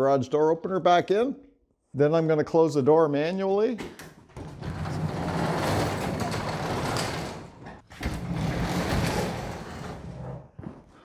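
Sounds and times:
garage door rolling down: 0:04.3 - 0:10.4.

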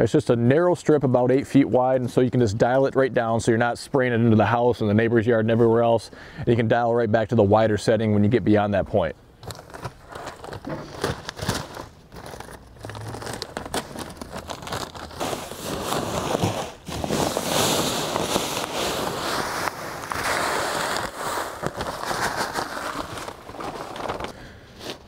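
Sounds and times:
plastic bag crinkling: 0:09.4 - 0:25.0
pellets pouring into hopper: 0:13.3 - 0:25.0.

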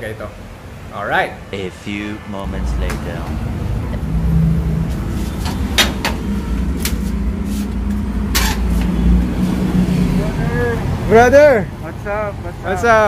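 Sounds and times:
low engine rumble: 0:01.5 - 0:13.0
metal door latch and bolt clicking: 0:05.4 - 0:06.2.

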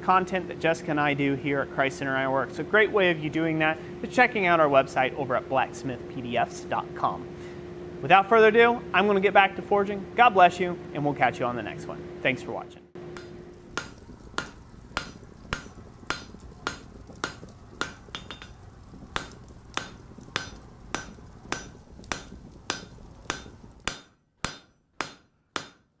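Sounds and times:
hammer striking anvil: 0:13.1 - 0:18.6, 0:19.2 - 0:25.9.

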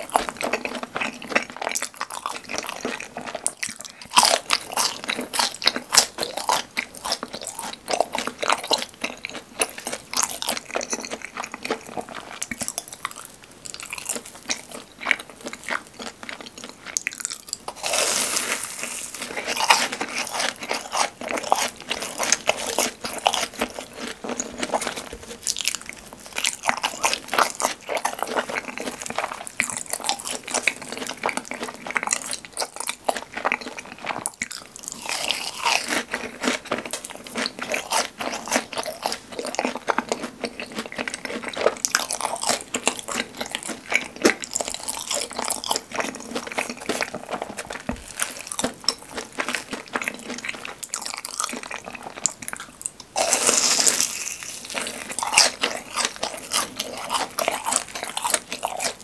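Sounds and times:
crunching and chewing: 0:00.0 - 0:59.0.

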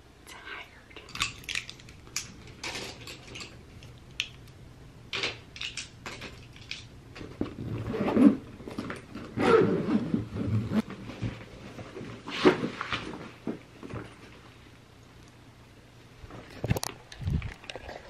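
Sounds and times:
makeup tools clicking and clattering: 0:01.0 - 0:04.4, 0:05.2 - 0:06.9
bag rustling and scraping: 0:07.2 - 0:14.5.

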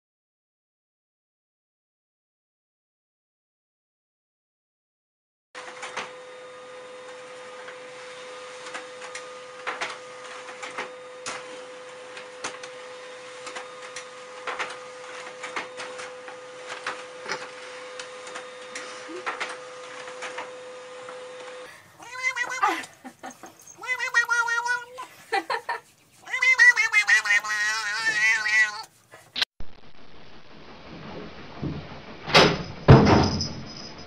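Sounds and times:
cat meowing loudly: 0:22.0 - 0:22.9, 0:23.7 - 0:25.1, 0:26.2 - 0:28.9.

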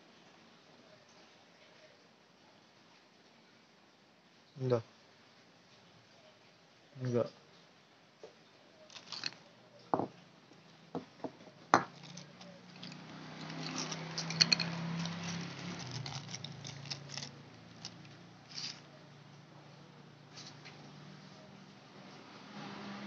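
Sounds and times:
faint low hum: 0:00.0 - 0:23.0
metal parts clicking and tapping: 0:08.9 - 0:09.4, 0:11.8 - 0:18.8.

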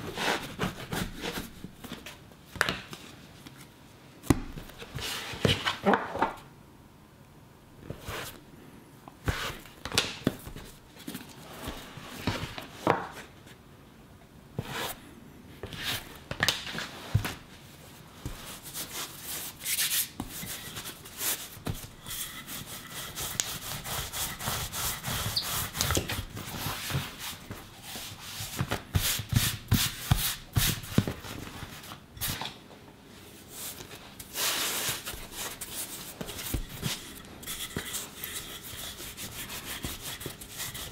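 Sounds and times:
dough rubbed on wooden board: 0:18.4 - 0:25.9, 0:34.6 - 0:40.9.

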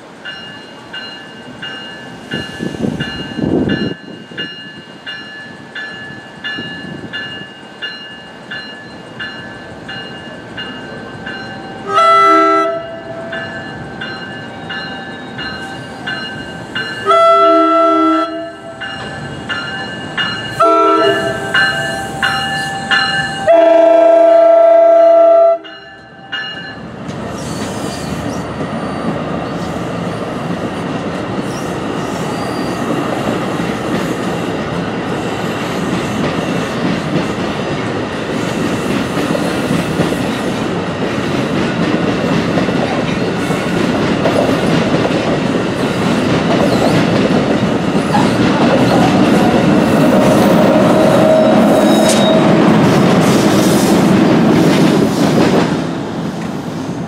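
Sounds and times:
train rumbling past on rails: 0:00.0 - 0:57.0
crossing warning bell ringing: 0:00.1 - 0:27.2, 0:46.9 - 0:53.2
train horn blasts: 0:11.8 - 0:13.3, 0:17.0 - 0:18.9, 0:20.5 - 0:26.3, 0:48.9 - 0:52.8.

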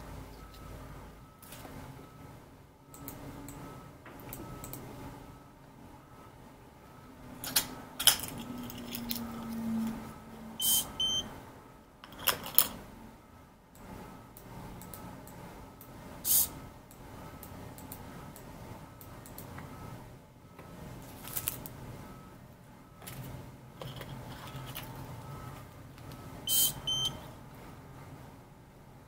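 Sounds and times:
short high beeps: 0:10.6 - 0:11.3, 0:26.5 - 0:27.2.

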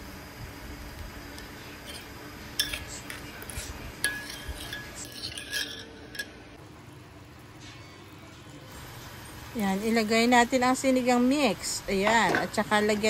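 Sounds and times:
metal spoon stirring and clinking pot: 0:01.8 - 0:06.6.

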